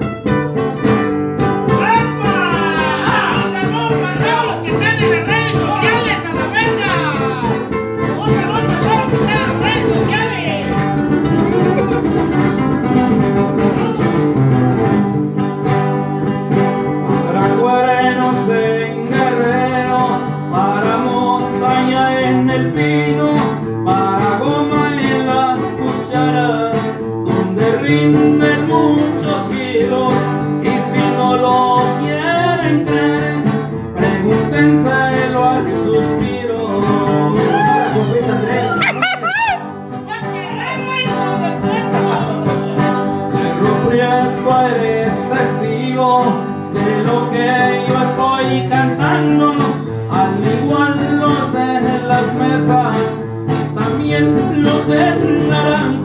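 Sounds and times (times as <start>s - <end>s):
acoustic guitars playing: 0.0s - 56.0s.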